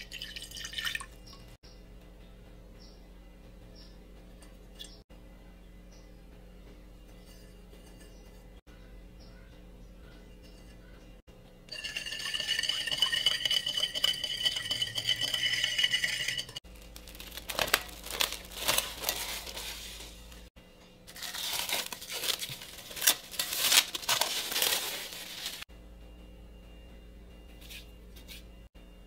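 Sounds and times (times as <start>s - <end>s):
utensils clinking against dishes: 7.0s - 8.6s, 11.7s - 16.6s.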